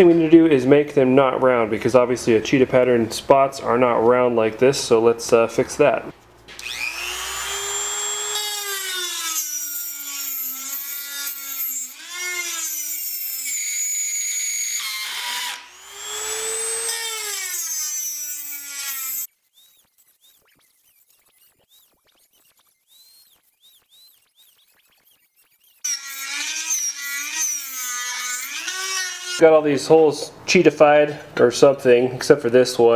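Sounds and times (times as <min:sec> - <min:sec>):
rotary tool grinding steel: 0:06.5 - 0:29.4.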